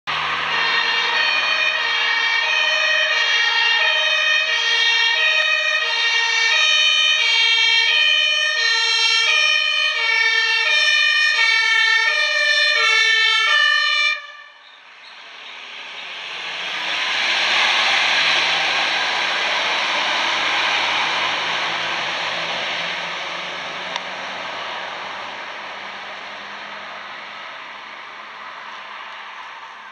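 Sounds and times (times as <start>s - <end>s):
truck engine and road noise: 0.0s - 29.9s
two-tone siren: 0.1s - 23.6s.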